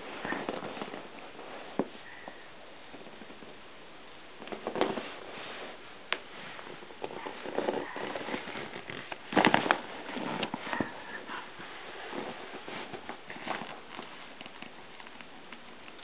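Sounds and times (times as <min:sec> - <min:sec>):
toy tunnel rustling and crinkling: 0:00.0 - 0:03.6, 0:04.4 - 0:16.0.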